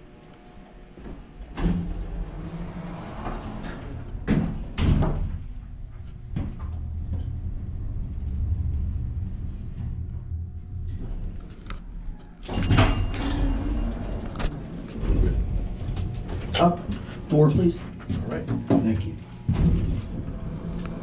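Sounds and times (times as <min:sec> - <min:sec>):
elevator low rumble: 0:00.0 - 0:21.0
elevator doors sliding shut: 0:01.4 - 0:05.6, 0:12.4 - 0:16.8, 0:19.4 - 0:21.0.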